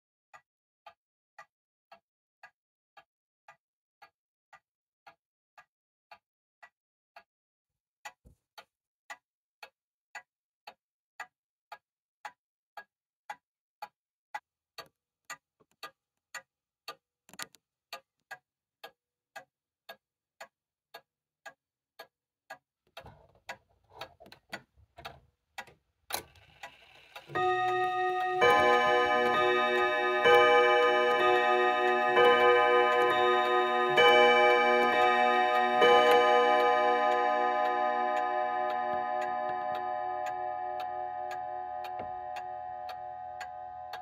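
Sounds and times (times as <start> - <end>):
wall clock ticking: 18.8 - 44.0.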